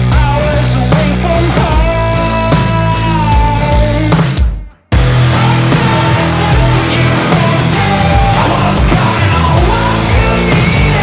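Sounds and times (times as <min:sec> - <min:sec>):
loud rock music: 0:00.0 - 0:11.0.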